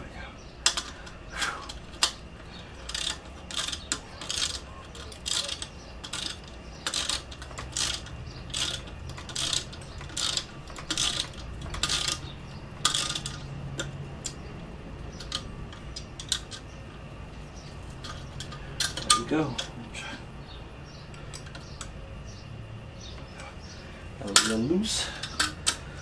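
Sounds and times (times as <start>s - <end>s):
hand ratchet clicking: 0.6s - 16.8s, 18.0s - 19.8s, 24.2s - 26.0s.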